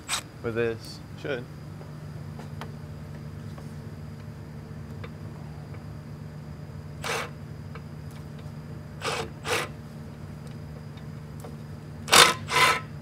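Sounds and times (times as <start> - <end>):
socket ratchet zipping strokes: 7.0 - 7.3, 9.0 - 9.7, 12.1 - 12.9.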